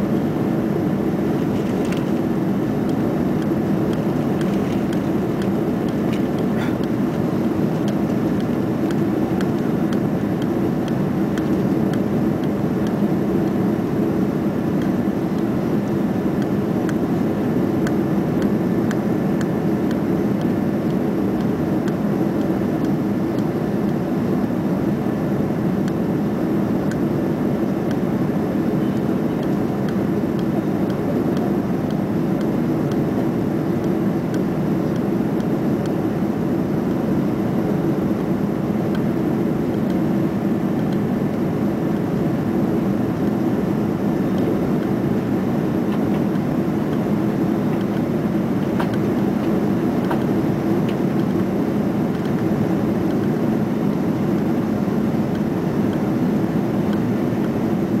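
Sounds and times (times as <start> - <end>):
jet cabin engine roar: 0.0 - 58.0.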